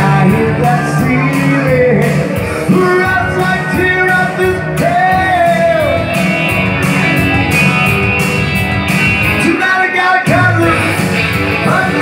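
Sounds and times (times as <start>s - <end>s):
man singing into microphone: 0.0s - 6.1s, 9.4s - 12.0s
rock and roll guitar music: 0.0s - 12.0s.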